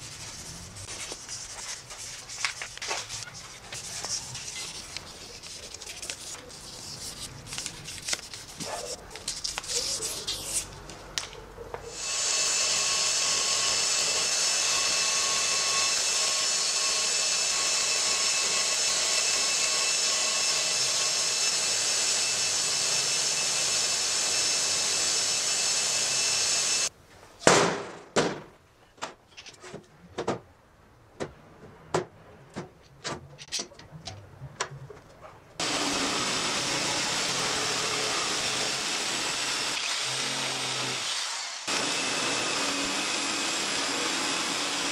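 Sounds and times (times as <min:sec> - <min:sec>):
sandpaper scraping on steel: 0:00.0 - 0:10.8.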